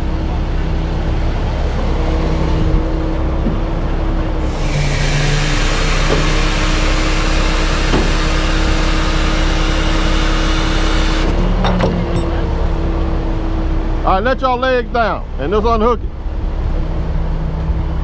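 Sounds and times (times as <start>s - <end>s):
diesel engine idling: 0.0s - 18.0s
loud steady hiss: 4.4s - 11.3s.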